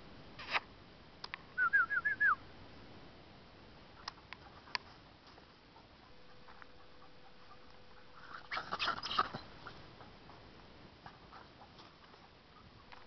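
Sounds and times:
person whistling for dog: 0:01.6 - 0:02.4.

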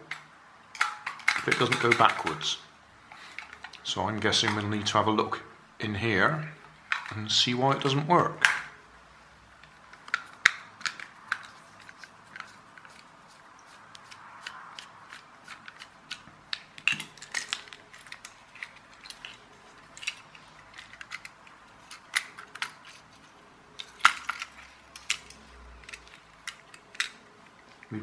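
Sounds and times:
plastic and metal clicks: 0:00.1 - 0:02.3, 0:14.0 - 0:22.9.

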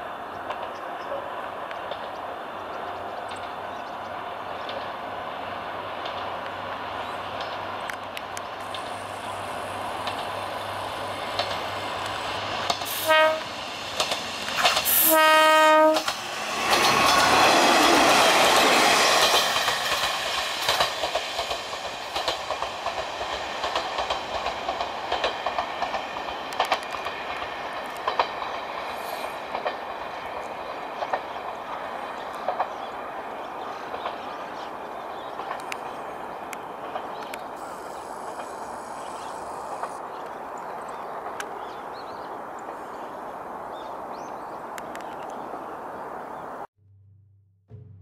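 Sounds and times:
train rumbling past: 0:00.0 - 0:48.0
train warning horn: 0:12.9 - 0:13.6, 0:14.9 - 0:16.2.

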